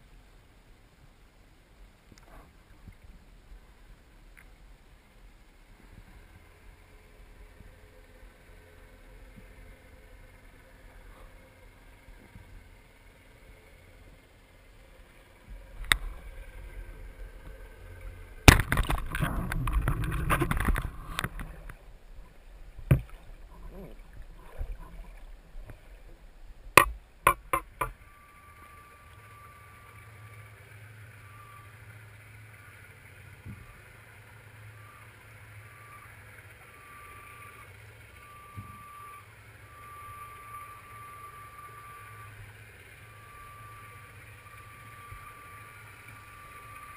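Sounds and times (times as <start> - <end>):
low underwater hum: 0.0 - 46.9
water rushing and sloshing: 1.8 - 39.0
faint high tone: 27.2 - 30.6.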